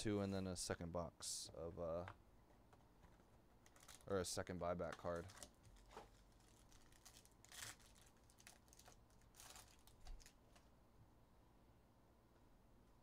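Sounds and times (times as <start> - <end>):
trading cards rustling and clicking: 3.0 - 4.2, 4.8 - 10.7
foil wrapper crinkling: 3.6 - 10.7.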